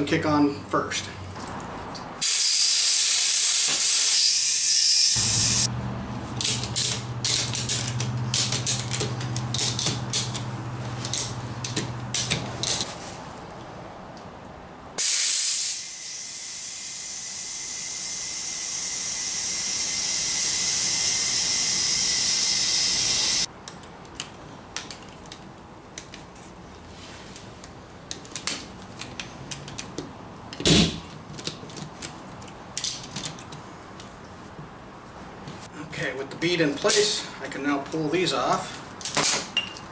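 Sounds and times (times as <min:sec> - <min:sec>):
compressed air hissing into tire: 0:02.2 - 0:04.5, 0:05.1 - 0:05.7, 0:15.0 - 0:23.5.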